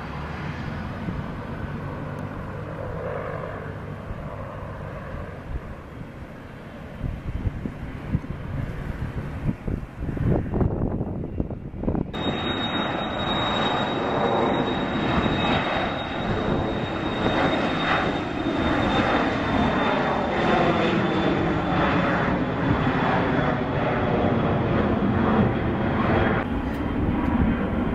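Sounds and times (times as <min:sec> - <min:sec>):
jet engines high whine: 0:00.0 - 0:27.9
jet noise rushing: 0:11.9 - 0:27.2.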